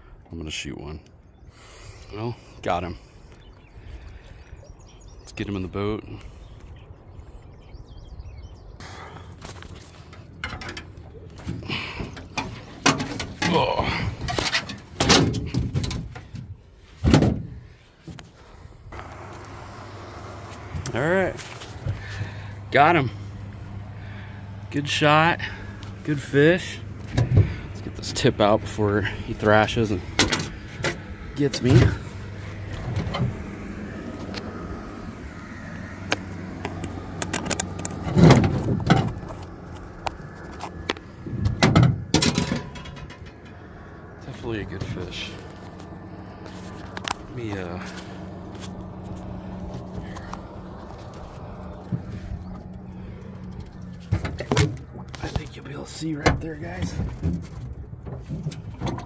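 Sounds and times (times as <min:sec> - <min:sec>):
steady low hum: 0:18.4 - 0:37.2
clicks and knocks on metal deck: 0:41.4 - 0:43.5
clattering rustle: 0:41.4 - 0:43.6.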